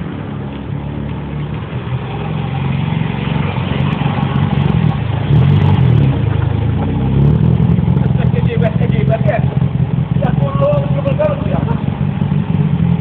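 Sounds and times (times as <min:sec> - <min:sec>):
sports car engine passing by: 0:00.0 - 0:13.0.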